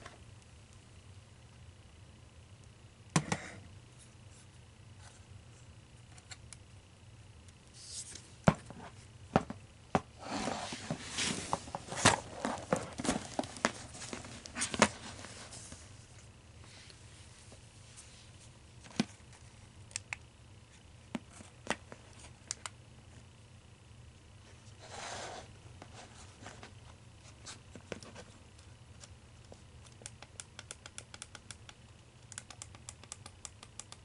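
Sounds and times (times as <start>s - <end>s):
packaging rustling: 10.8s - 15.8s.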